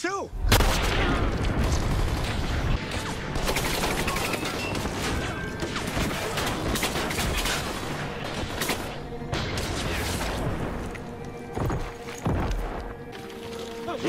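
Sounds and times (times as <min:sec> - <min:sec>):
rapid gunfire: 0:00.5 - 0:10.2.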